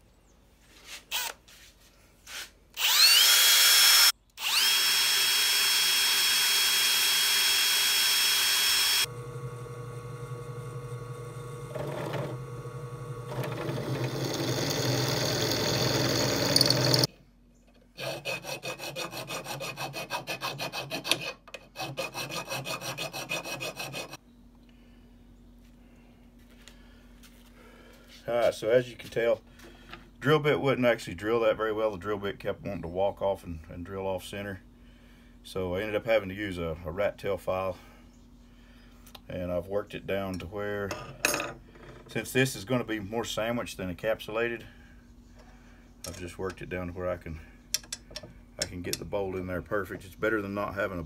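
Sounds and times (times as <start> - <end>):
cordless drill whining: 1.1 - 1.4, 2.8 - 17.1
drill press motor humming: 2.8 - 17.1.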